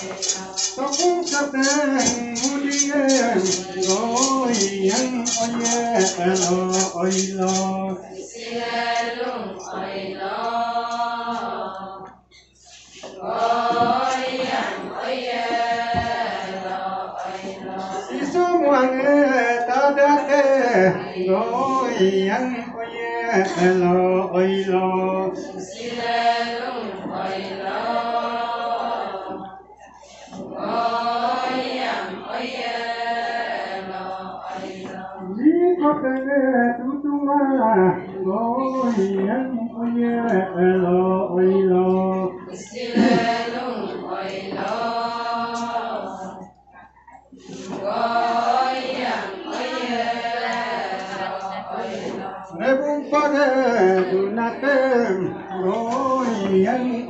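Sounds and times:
group of voices chanting: 0:25.4 - 0:35.4, 0:42.3 - 0:46.4, 0:47.4 - 0:57.0.

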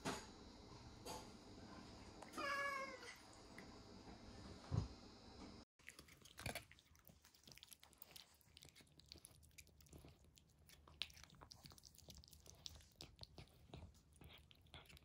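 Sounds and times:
cat chewing and licking food: 0:05.8 - 0:15.0.

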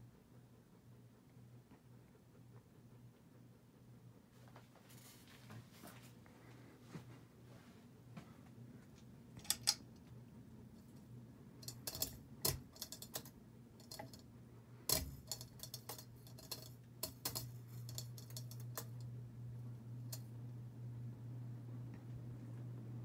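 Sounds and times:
ceiling fan motor humming: 0:00.0 - 0:23.0
irregular clicks and taps: 0:10.8 - 0:14.3, 0:14.9 - 0:19.1.

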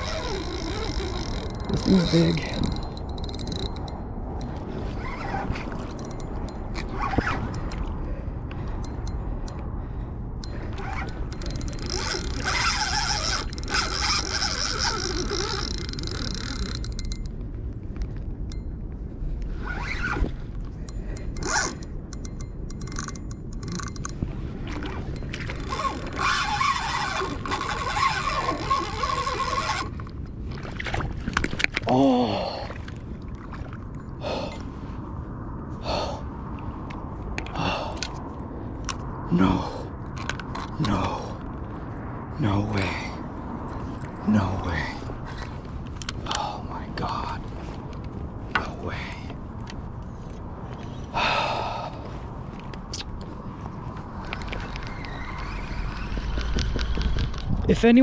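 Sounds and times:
fishing reel drag buzzing: 0:00.0 - 0:07.1, 0:10.4 - 0:17.3, 0:21.1 - 0:24.1, 0:24.8 - 0:30.1, 0:54.2 - 0:57.4
reel clicking: 0:00.0 - 0:07.9, 0:10.4 - 0:17.4, 0:19.8 - 0:30.2
rod handling rumble: 0:00.0 - 0:08.0, 0:10.4 - 0:18.7, 0:19.4 - 0:32.0, 0:52.4 - 0:58.0.

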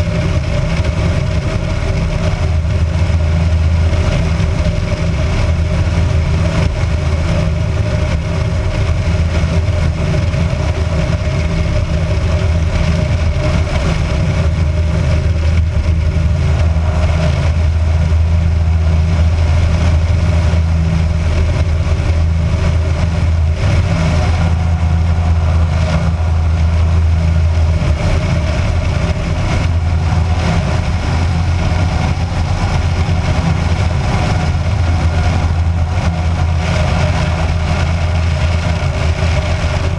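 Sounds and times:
light aircraft engine and propeller: 0:00.0 - 0:39.9
wind rushing over camera: 0:00.0 - 0:39.9.

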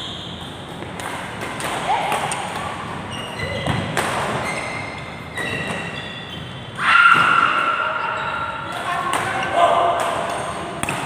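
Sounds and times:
sports shoes squeaking: 0:00.0 - 0:01.0, 0:02.5 - 0:06.8, 0:07.6 - 0:09.4
rackets hitting shuttlecock: 0:00.3 - 0:04.4, 0:08.7 - 0:11.0.

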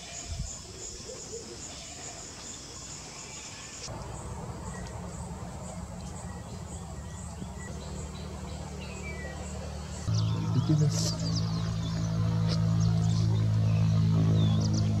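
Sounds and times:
steady low hum: 0:03.9 - 0:15.0.

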